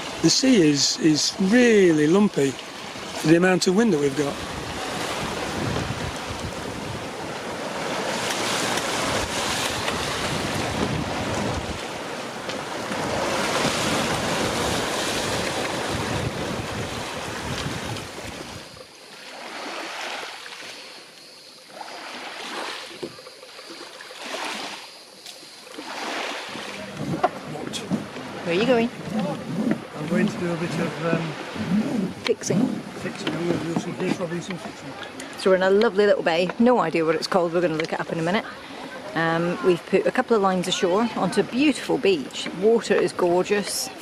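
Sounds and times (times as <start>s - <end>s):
small waves lapping: 0.0s - 44.0s
water splashing along hull: 0.0s - 44.0s
wind buffeting microphone: 4.3s - 18.8s, 26.8s - 34.8s.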